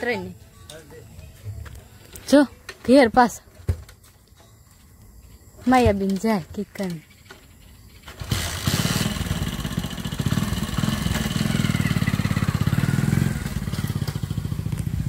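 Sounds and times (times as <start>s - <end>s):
motorcycle engine starting and puttering: 5.8s - 15.0s.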